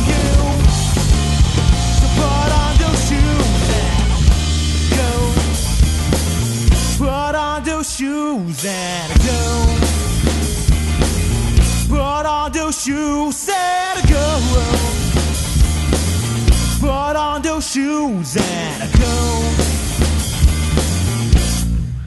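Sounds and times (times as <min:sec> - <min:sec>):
bass drum hits: 0:00.0 - 0:07.1
live band playing: 0:00.0 - 0:22.0.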